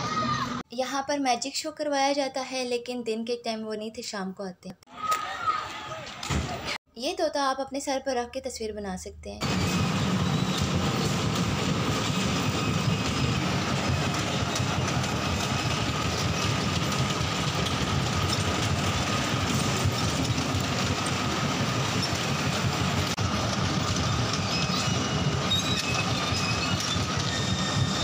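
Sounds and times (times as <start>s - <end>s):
bumper cars rumbling: 0.0s - 0.6s, 9.4s - 28.0s.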